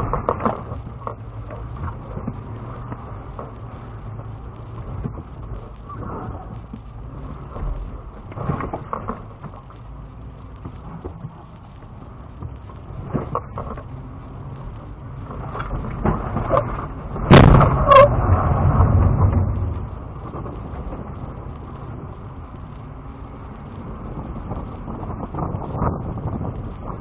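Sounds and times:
body and suspension knocks and creaks: 0:00.0 - 0:03.6, 0:06.0 - 0:09.8, 0:10.6 - 0:14.0, 0:15.2 - 0:21.2
engine running low: 0:00.0 - 0:27.0
suspension squeaks: 0:17.7 - 0:18.2.

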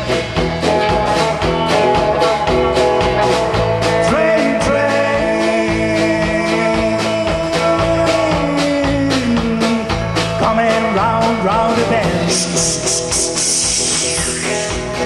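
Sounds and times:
rock band playing: 0:00.0 - 0:15.0
bright hiss: 0:12.6 - 0:14.8.

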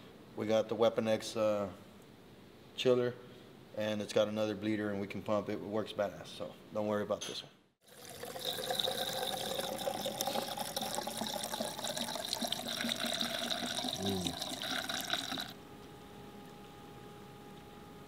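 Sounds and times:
liquid pouring through a funnel: 0:07.8 - 0:15.6.

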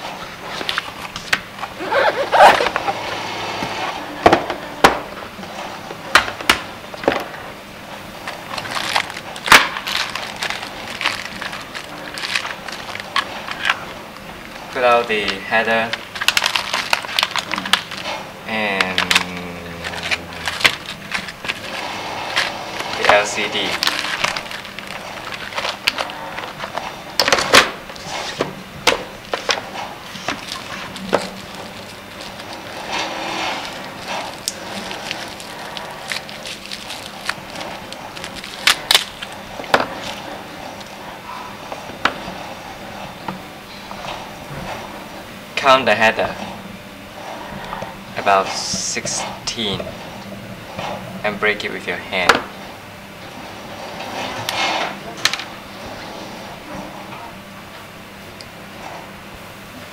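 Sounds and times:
plastic bags rustling: 0:06.9 - 0:41.0
plastic packaging crinkling: 0:08.2 - 0:28.1, 0:29.0 - 0:40.9.

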